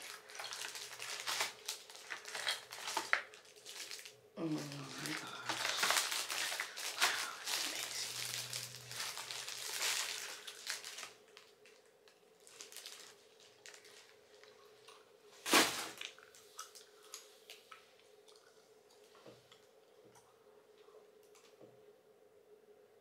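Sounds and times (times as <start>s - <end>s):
packaging crinkling and rustling: 0.0s - 16.8s.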